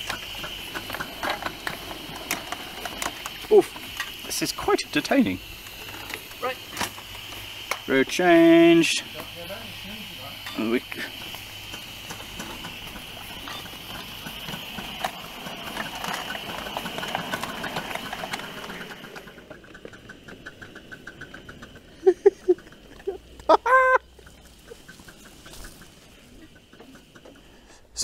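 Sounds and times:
steam hissing: 0:00.0 - 0:28.0
steam locomotive beats: 0:00.0 - 0:28.0
soft regular ticking: 0:19.5 - 0:27.8.

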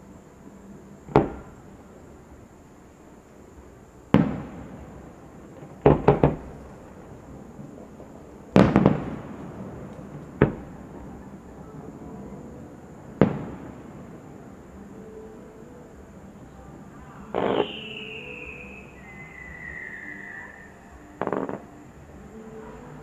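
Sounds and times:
echoing rumble: 0:00.7 - 0:23.0
firework shells bursting: 0:04.1 - 0:11.2.

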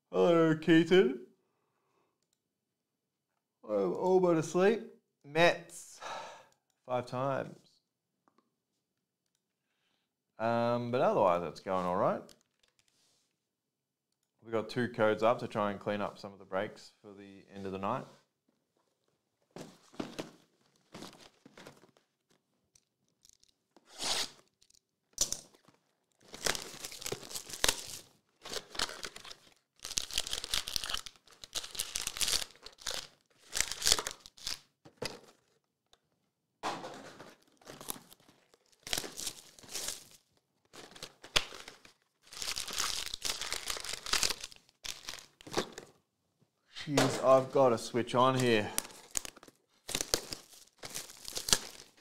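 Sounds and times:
cardboard and wrapping tearing: 0:23.2 - 0:34.7, 0:37.4 - 0:45.8, 0:48.3 - 0:52.0.

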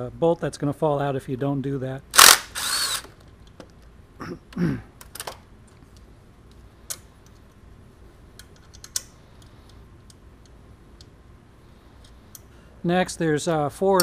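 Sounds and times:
power tool whirring down: 0:02.2 - 0:03.2.

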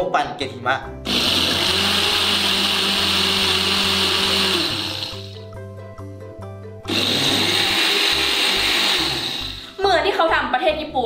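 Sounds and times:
blender crushing ice: 0:01.1 - 0:05.4, 0:06.9 - 0:09.8.

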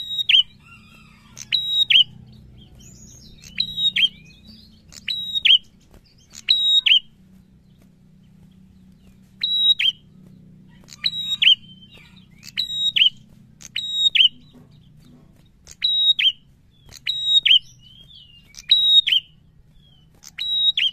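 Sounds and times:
bird singing whistled phrases: 0:00.0 - 0:02.2, 0:02.8 - 0:07.1, 0:09.4 - 0:10.0, 0:10.9 - 0:14.5, 0:15.7 - 0:20.9.

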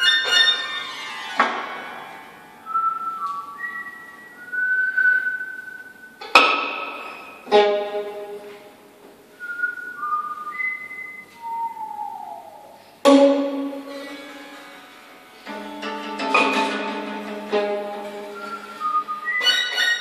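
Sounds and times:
high held string notes: 0:00.0 - 0:04.7, 0:06.2 - 0:09.0, 0:12.8 - 0:20.0.

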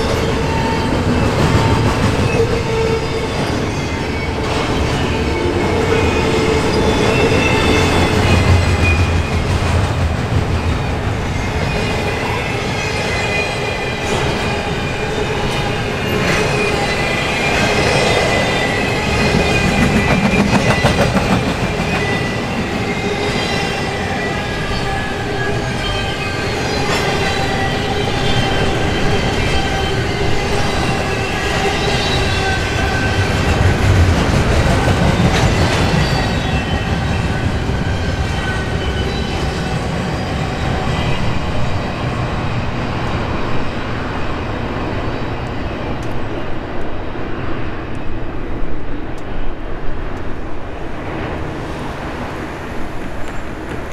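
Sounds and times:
train wheels rumbling on rail: 0:00.0 - 0:53.9.

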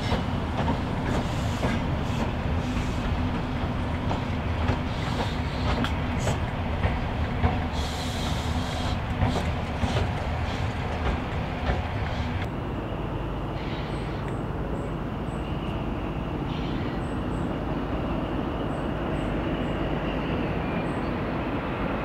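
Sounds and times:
wheels clicking on track: 0:00.0 - 0:12.5
diesel train engine: 0:00.0 - 0:22.0
low train rumble: 0:00.0 - 0:22.0.

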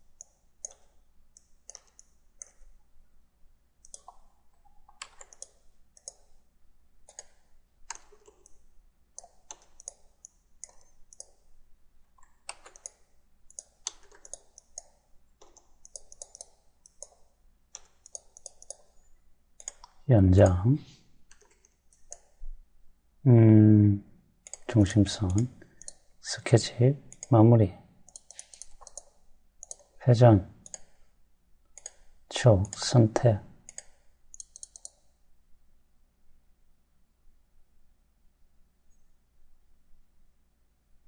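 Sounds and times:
computer mouse clicking: 0:00.0 - 0:02.8, 0:03.8 - 0:06.4, 0:07.0 - 0:11.5, 0:12.1 - 0:20.0, 0:21.2 - 0:22.4, 0:24.4 - 0:26.1, 0:27.1 - 0:27.4, 0:28.0 - 0:30.0, 0:30.6 - 0:31.1, 0:31.7 - 0:35.2.

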